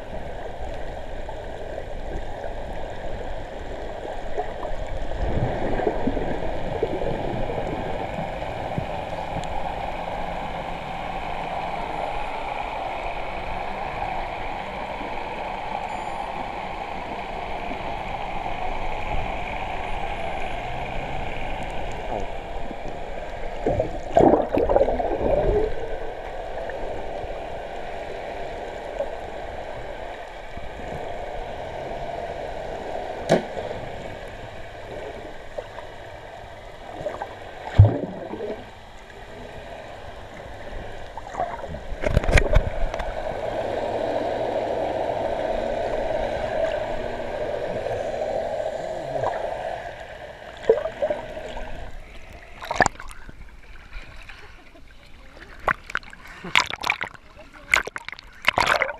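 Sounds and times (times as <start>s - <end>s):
splashing and bubbling: 3.6s - 9.4s, 20.6s - 27.2s, 36.8s - 39.4s, 41.1s - 43.1s, 48.9s - 58.9s.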